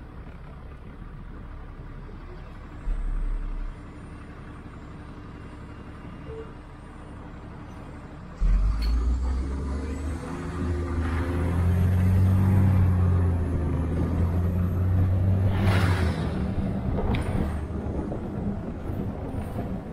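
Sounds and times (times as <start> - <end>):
bus engine and road rumble: 0.0 - 19.9.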